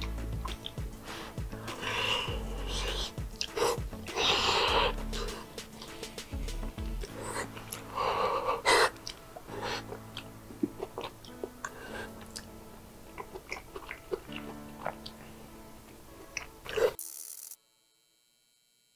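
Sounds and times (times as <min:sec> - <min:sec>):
wet chewing with mouth clicks: 0:00.0 - 0:06.0, 0:08.7 - 0:15.2
loud slurp: 0:00.4 - 0:06.1.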